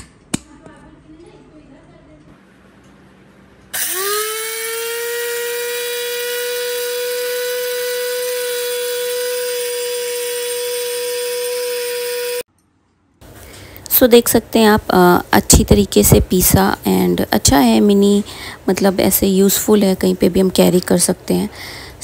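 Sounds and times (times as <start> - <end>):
spice grinder motor whining: 3.7 - 12.5.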